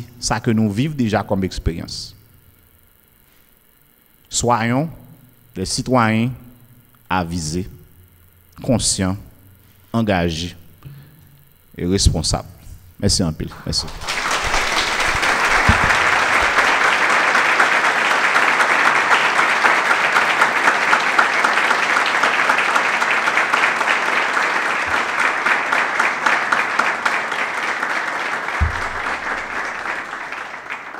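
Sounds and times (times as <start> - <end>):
audience applauding: 13.5 - 30.9.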